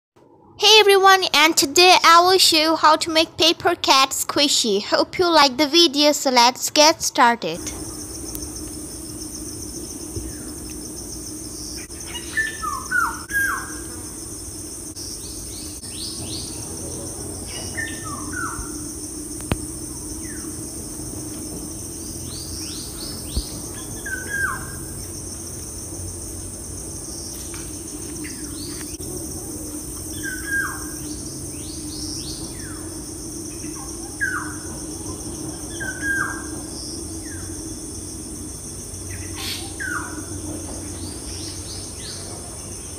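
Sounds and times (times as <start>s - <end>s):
background hiss and hum: 0.2s - 42.9s
small birds chirping: 21.8s - 25.2s.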